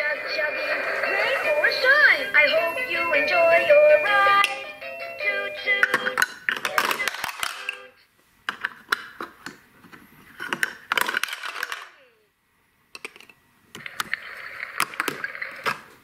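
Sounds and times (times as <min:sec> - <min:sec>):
toy plastic buttons clicking: 0:05.8 - 0:07.8.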